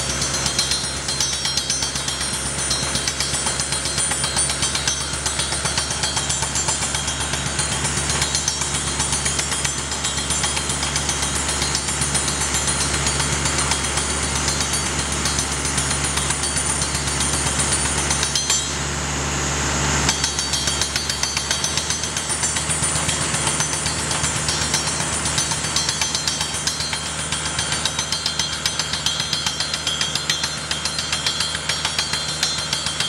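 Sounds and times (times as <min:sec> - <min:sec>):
rock drill hammering into rock: 0:00.0 - 0:18.9, 0:20.0 - 0:33.0.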